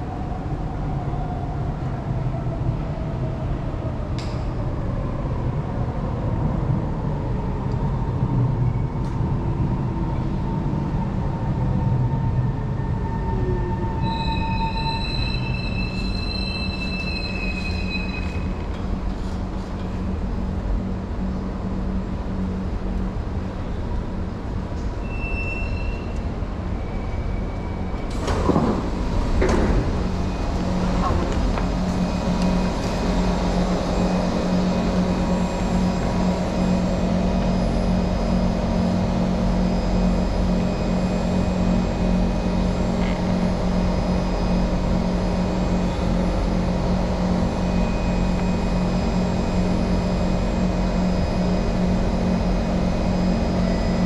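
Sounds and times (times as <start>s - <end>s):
train wheels squealing: 12.8s - 18.7s, 24.8s - 28.1s, 32.0s - 54.0s
train motor whine: 25.7s - 54.0s
train doors opening clatter: 27.2s - 34.8s.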